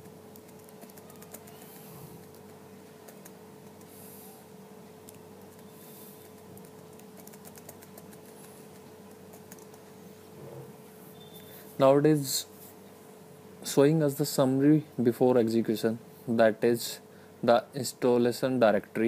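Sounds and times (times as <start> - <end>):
keyboard typing clicks: 0.0 - 3.9
low steady hum: 0.0 - 19.0.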